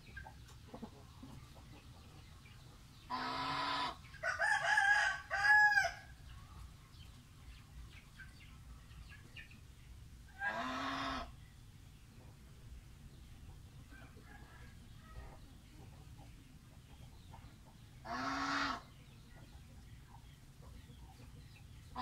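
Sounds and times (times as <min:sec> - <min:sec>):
chicken calling: 0:03.1 - 0:06.1, 0:10.3 - 0:11.4, 0:18.0 - 0:19.0.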